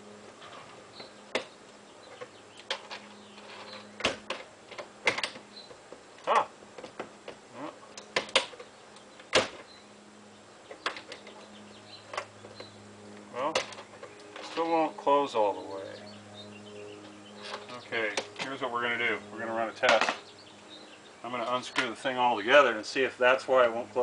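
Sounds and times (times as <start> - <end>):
metal door lock clicking: 4.0 - 5.4.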